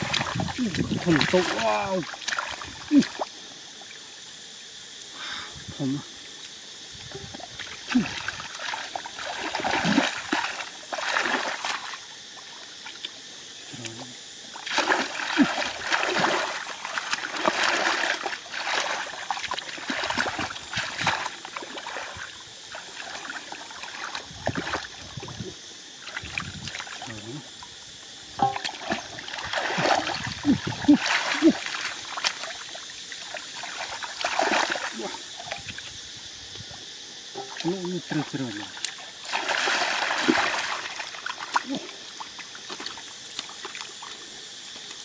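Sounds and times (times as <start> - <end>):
hands splashing in muddy water: 0.0 - 3.2, 7.9 - 12.0, 14.6 - 24.9, 28.4 - 32.5, 33.3 - 35.8, 38.8 - 41.8.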